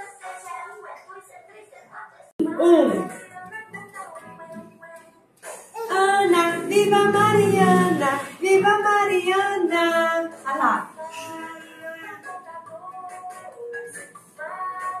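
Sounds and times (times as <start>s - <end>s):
woman singing held notes: 2.4s - 4.7s, 5.8s - 12.2s
backing music: 2.4s - 15.0s.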